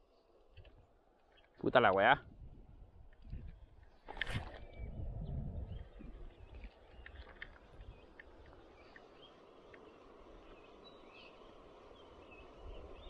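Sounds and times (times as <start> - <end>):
birds chirping: 4.0 - 13.0
background hiss: 8.1 - 13.0.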